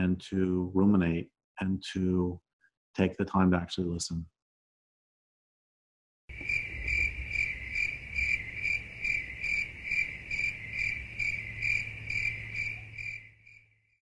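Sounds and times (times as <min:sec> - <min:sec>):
cricket chirping: 0:06.3 - 0:14.0.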